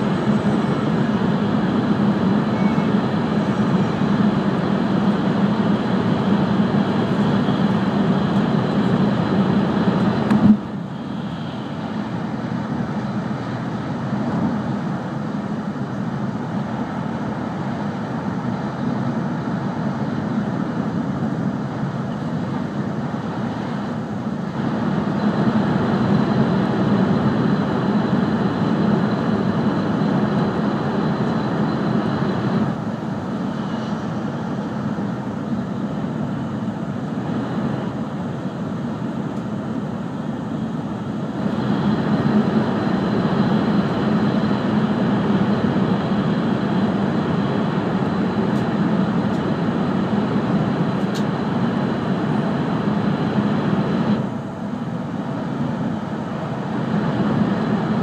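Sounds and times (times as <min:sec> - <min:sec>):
faint high whine: 0:00.0 - 0:58.0.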